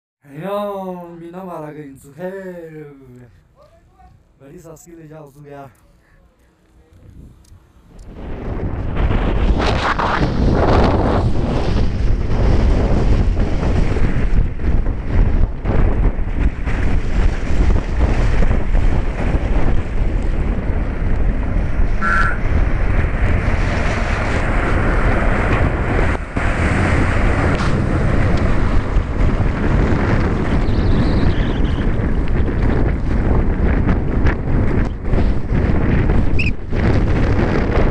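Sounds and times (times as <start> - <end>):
wind buffeting microphone: 3.1 - 37.9
vehicle road noise: 21.3 - 30.9
short high tone: 22.0 - 22.4.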